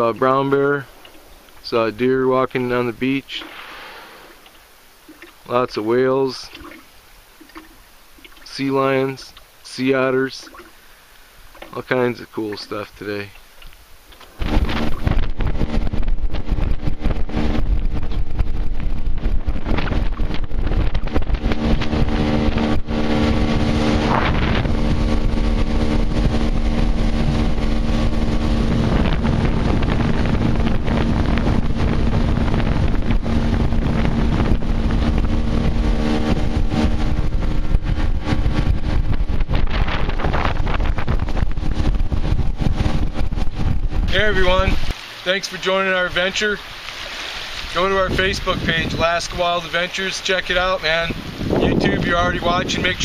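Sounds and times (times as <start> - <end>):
boat motor running: 0.0 - 53.0
wind rushing over microphone: 14.3 - 45.0, 47.4 - 53.0.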